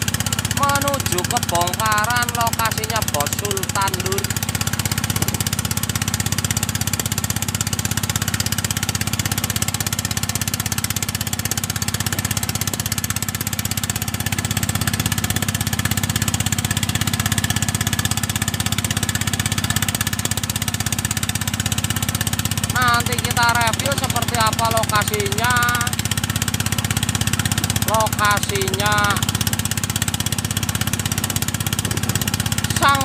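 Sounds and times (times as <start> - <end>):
diesel engine idling: 0.0 - 33.0.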